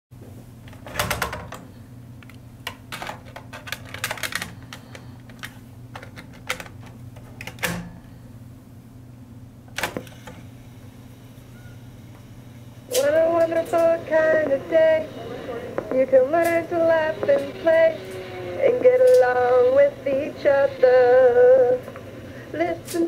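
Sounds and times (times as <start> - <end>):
steady low hum: 0.2 - 23.0
cassette plastic clicks: 2.2 - 7.9.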